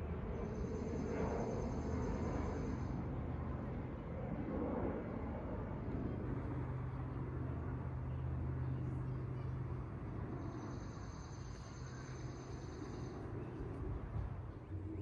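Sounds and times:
faint high whine: 0:00.0 - 0:04.0, 0:06.0 - 0:15.0
aircraft engine rumble: 0:00.0 - 0:15.0.

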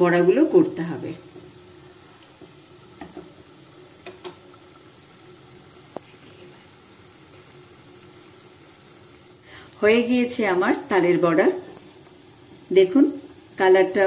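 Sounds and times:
oil sizzling with pops: 0:00.0 - 0:14.0.

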